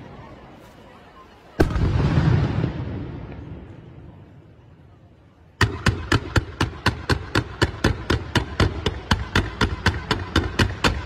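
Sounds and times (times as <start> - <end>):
firework launches: 1.6 - 3.6.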